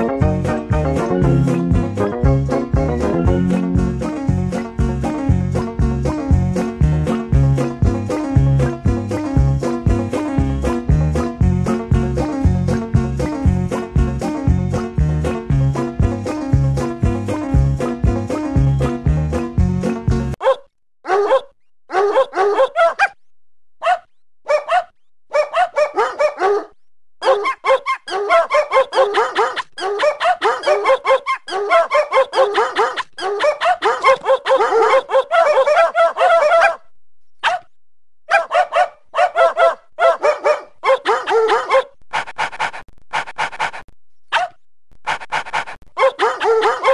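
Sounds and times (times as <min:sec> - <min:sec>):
small dog yapping: 0:20.4 - 0:23.2, 0:23.8 - 0:36.8, 0:38.3 - 0:41.9, 0:43.4 - 0:46.9.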